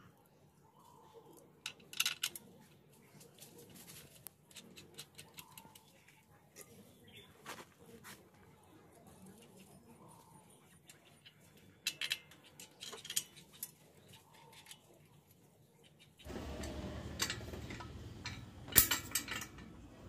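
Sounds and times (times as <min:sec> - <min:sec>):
metallic clicks of bolts tightened: 0:11.8 - 0:13.8, 0:16.5 - 0:19.8.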